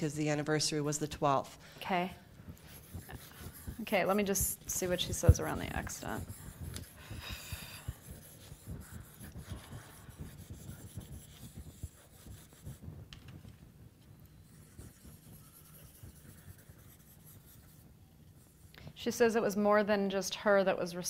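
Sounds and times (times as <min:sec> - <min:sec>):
pen writing on paper: 0:02.6 - 0:12.8, 0:14.4 - 0:17.8.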